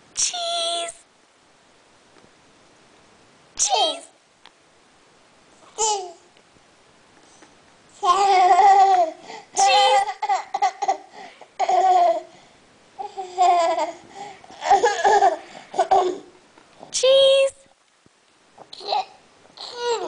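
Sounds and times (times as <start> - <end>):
baby babbling and laughing: 5.8 - 6.3, 8.0 - 12.3, 13.0 - 16.3, 18.7 - 20.0.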